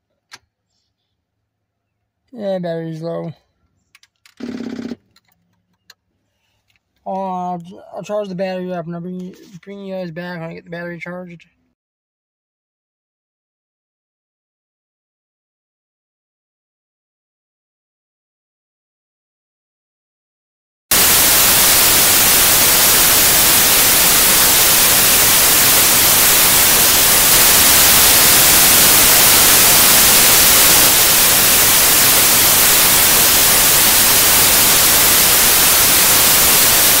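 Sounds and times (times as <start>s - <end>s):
loud static hiss: 20.9s - 37.0s.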